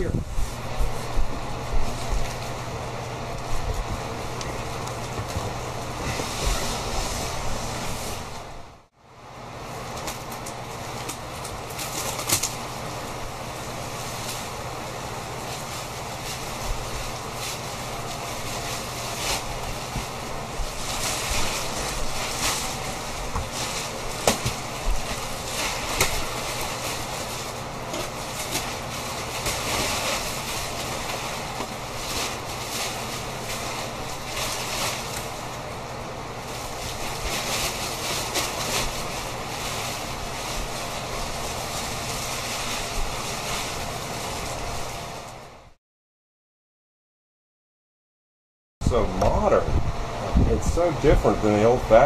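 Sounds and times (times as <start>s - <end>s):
plastic wrapping crinkling: 13.8s - 45.4s.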